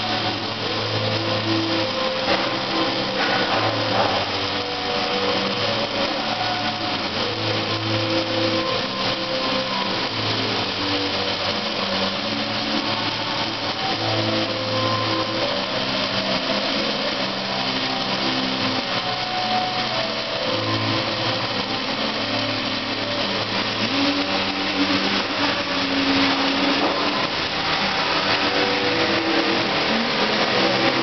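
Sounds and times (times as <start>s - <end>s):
welding arc crackling hiss: 0.0s - 17.4s.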